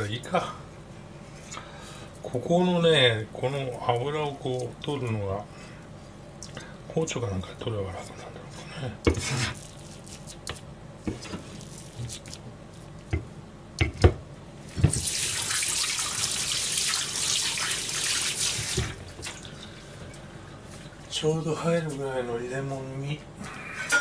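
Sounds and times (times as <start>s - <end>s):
tap running into metal sink: 14.8s - 15.2s.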